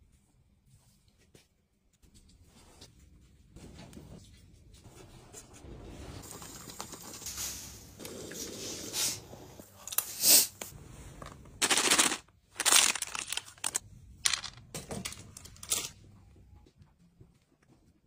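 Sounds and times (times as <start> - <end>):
packaging crinkling: 11.6 - 14.6
chocolates rattling out of plastic bag: 11.6 - 15.9.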